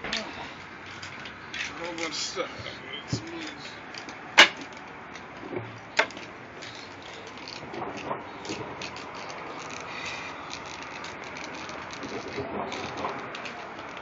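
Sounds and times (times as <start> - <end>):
light clicks and rattles: 3.1 - 14.0.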